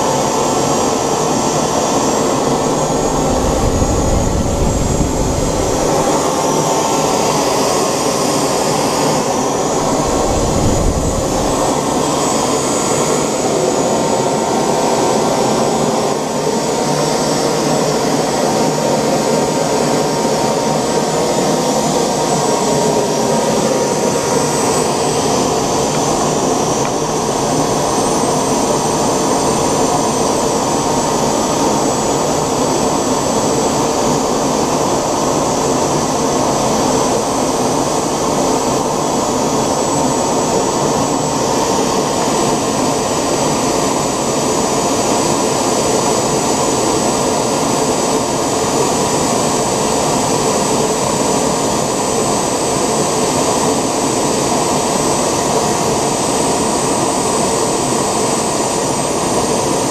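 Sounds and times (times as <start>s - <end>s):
model jet engine running: 0.0s - 59.9s.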